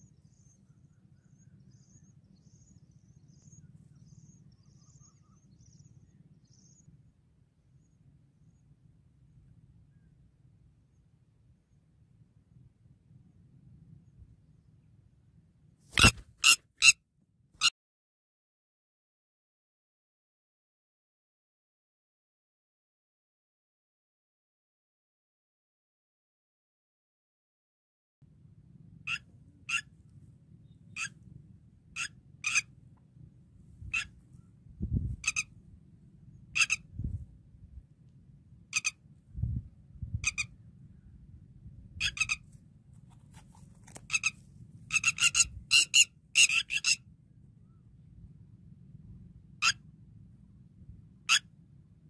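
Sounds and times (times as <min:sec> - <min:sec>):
animal's short high calls: 0:16.0 - 0:17.0
faint low rumble: 0:28.2 - 0:46.4, 0:47.0 - 0:52.0.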